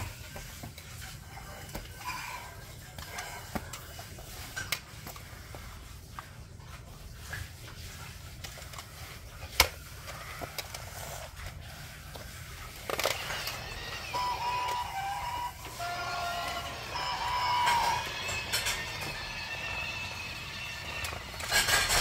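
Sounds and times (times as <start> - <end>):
toy train steam hiss: 12.8 - 22.0.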